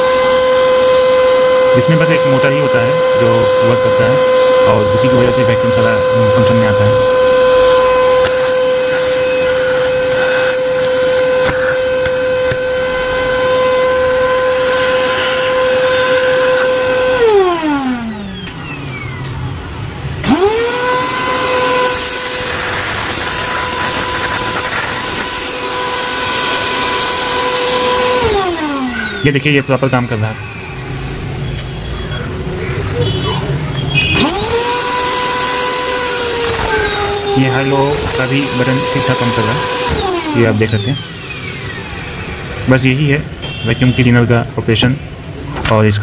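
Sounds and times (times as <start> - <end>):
vacuum cleaner motor whining: 0.0 - 46.0.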